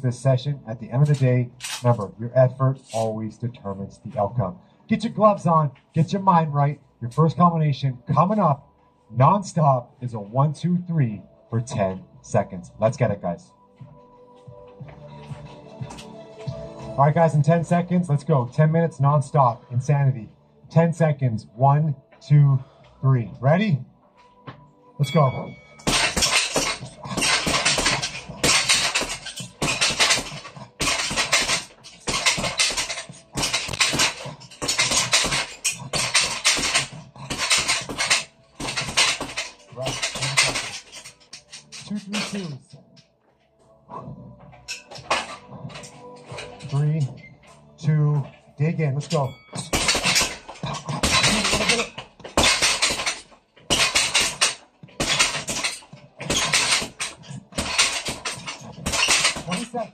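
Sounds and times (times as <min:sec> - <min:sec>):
metal chain rattling: 0:25.0 - 0:43.1, 0:44.5 - 0:48.5, 0:49.1 - 0:59.9
punches smacking heavy bag: 0:25.8 - 0:40.9, 0:49.6 - 0:59.7.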